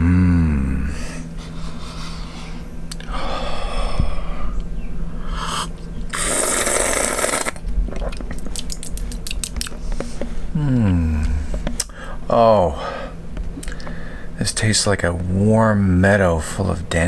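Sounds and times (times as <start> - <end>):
small mouth clicks: 2.9 - 3.1, 5.6 - 9.8
man slurping coffee: 5.4 - 8.4.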